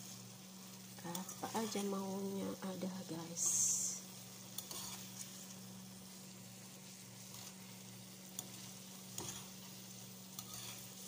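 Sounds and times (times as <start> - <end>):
noodles sizzling in frying pan: 0.0 - 11.0
spatula stirring: 1.1 - 2.2, 3.4 - 11.0.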